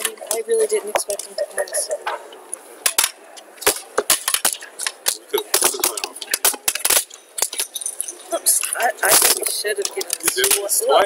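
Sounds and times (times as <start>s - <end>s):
game checkers clacking on board: 2.8s - 10.9s.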